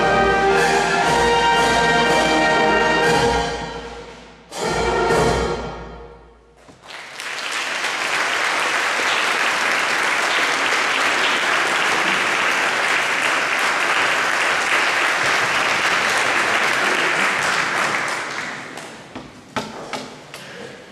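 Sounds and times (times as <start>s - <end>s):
audience applauding: 6.7s - 19.1s
sharp knocks: 19.1s - 20.2s.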